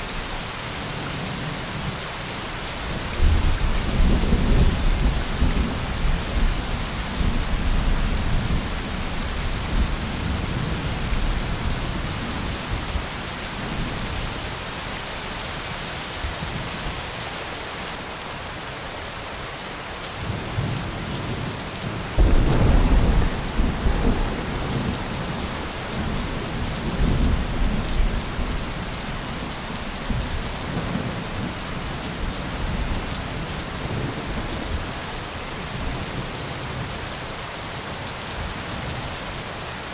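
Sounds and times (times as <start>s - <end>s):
steady rain: 0.0s - 39.9s
rolling thunder: 22.2s - 28.9s.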